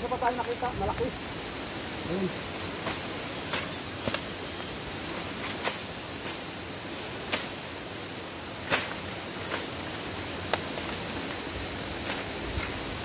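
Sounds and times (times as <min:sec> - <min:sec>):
steady hiss: 0:00.0 - 0:13.0
footsteps crunching through dry leaves: 0:02.6 - 0:13.0
stems snapping and swishing: 0:02.8 - 0:04.3, 0:05.4 - 0:06.5, 0:07.2 - 0:07.7, 0:08.6 - 0:09.8, 0:10.4 - 0:11.4, 0:12.0 - 0:12.8.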